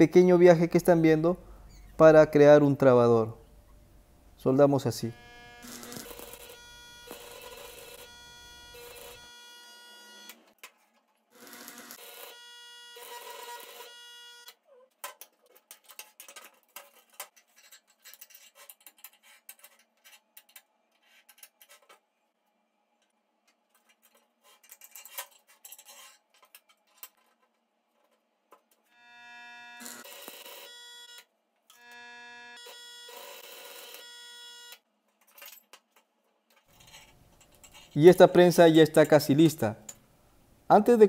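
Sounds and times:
electric arc welding buzz and crackle: 5.0 - 10.4, 11.4 - 14.5, 29.0 - 30.6.

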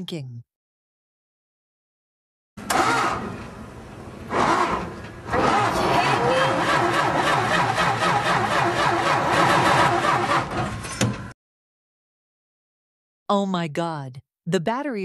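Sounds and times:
car engine cranking: 2.6 - 11.0.

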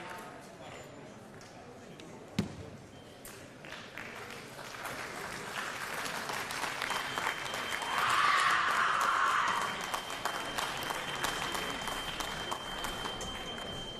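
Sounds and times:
audience applauding: 3.9 - 13.9.

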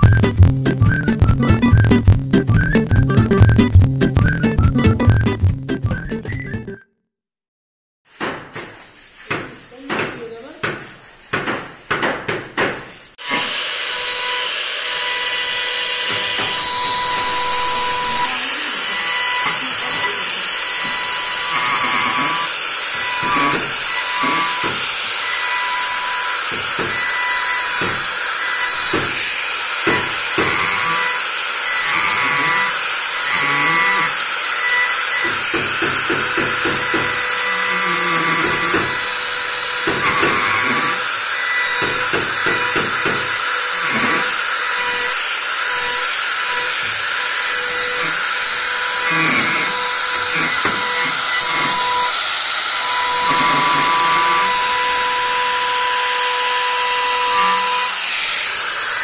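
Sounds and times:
sharp knocks: 8.2 - 13.5, 35.2 - 37.2
trim router cutting wood: 13.2 - 59.0.

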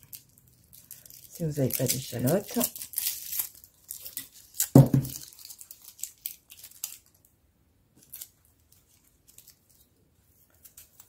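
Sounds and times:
shallot skin crackling: 0.0 - 7.1
dull knock: 4.8 - 5.1.

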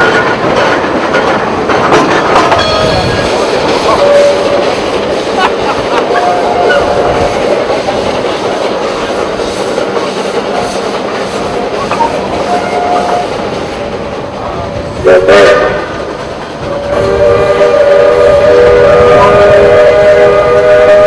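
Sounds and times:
train rumbling and clattering: 0.0 - 21.0
steam whistle blowing: 3.9 - 4.6, 6.2 - 7.1, 12.0 - 13.4, 15.0 - 15.9, 16.7 - 21.0.

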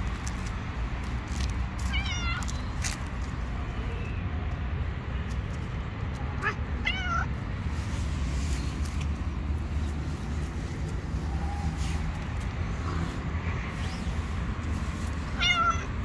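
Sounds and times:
cat meowing: 1.9 - 2.5, 6.4 - 7.3, 15.3 - 16.0.

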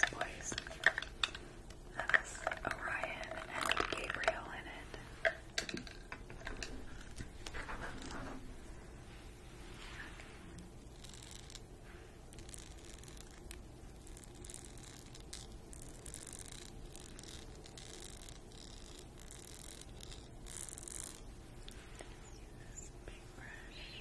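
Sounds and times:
fingernails scratching brush handle: 10.9 - 11.7, 12.3 - 21.3.

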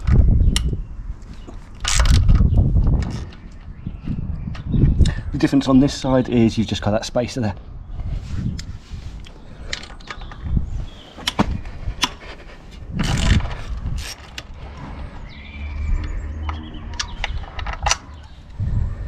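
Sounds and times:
small metal clicks and knocks: 16.4 - 18.4.

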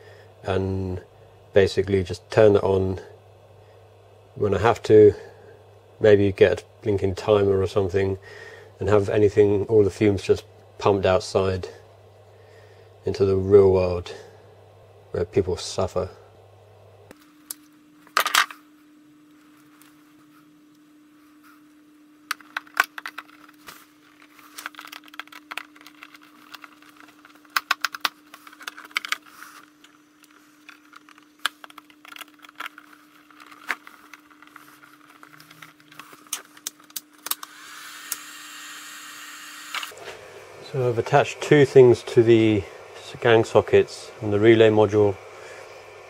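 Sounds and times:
cooling fan whooshing: 0.0 - 17.2, 18.6 - 38.4, 39.9 - 46.0
wires and connectors clicking: 22.3 - 38.3.

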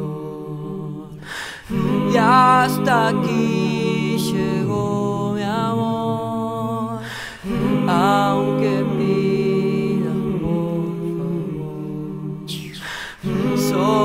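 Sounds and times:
breathy vocal swoop: 0.0 - 3.0, 6.7 - 8.6, 11.0 - 14.0
a cappella voices in harmony: 0.0 - 14.0.

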